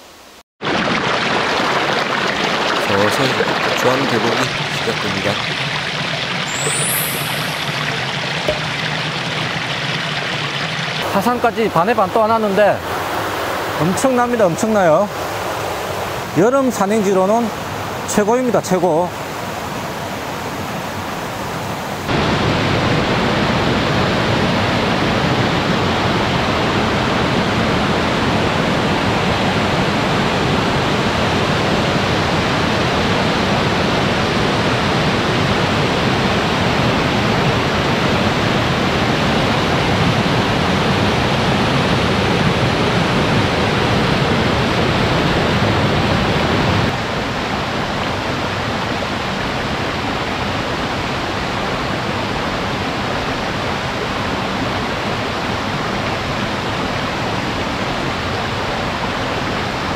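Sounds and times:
stream rushing over boulders: 0.6 - 59.9.

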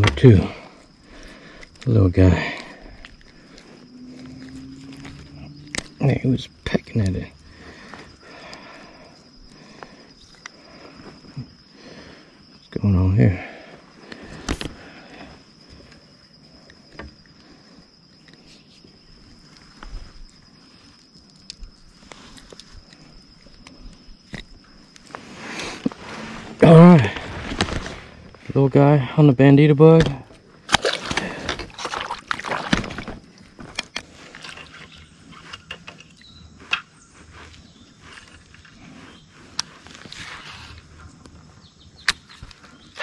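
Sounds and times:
insects trilling: 0.0 - 43.0
water splashing beside kayak: 30.7 - 33.5.

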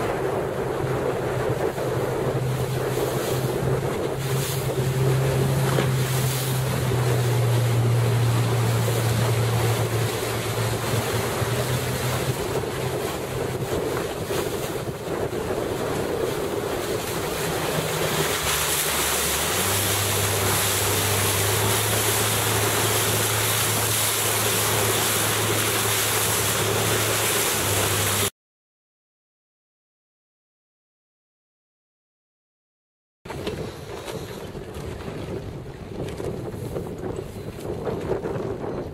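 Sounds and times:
boat motor droning: 0.0 - 28.3, 33.3 - 38.9
rushing water: 0.0 - 28.3
wind buffeting microphone: 0.0 - 28.3, 33.3 - 38.9.

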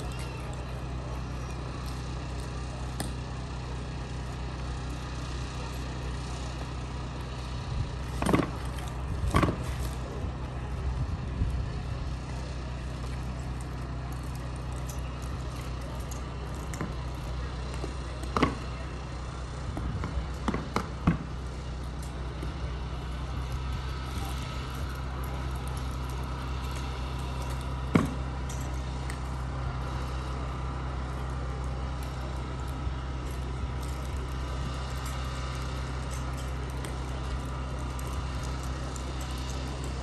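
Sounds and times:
steady low outdoor hum: 0.0 - 40.0.

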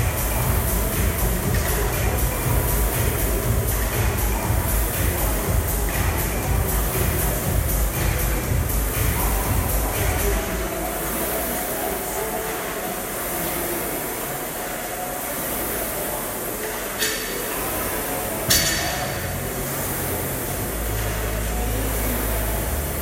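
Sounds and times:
low hum: 0.0 - 11.0
gym workout noise: 0.0 - 23.0.

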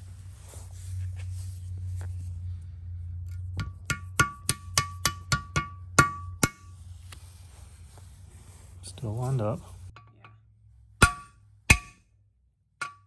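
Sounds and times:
hammer striking steel block: 3.6 - 6.7, 11.0 - 12.1.

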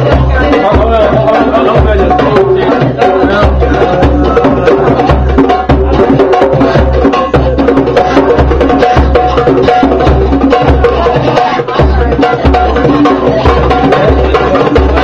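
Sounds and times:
hand drums playing: 0.0 - 15.0.

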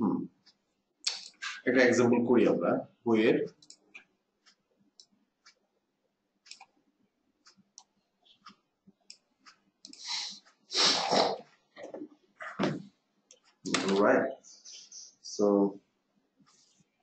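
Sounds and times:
mouse and keyboard clicks: 6.4 - 6.7, 13.3 - 14.1.

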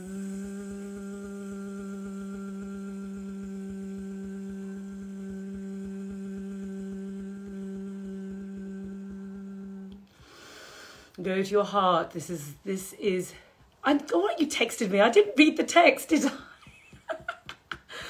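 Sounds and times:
woman humming a low note: 0.0 - 10.2.

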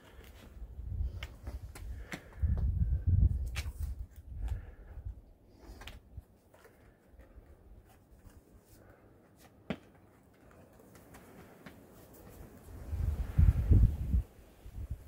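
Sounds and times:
shoes and hands scuffing on rock: 5.7 - 12.8.

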